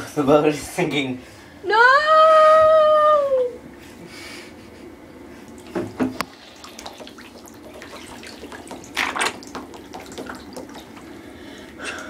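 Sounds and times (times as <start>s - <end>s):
bathwater sloshing and splashing: 5.4s - 11.6s.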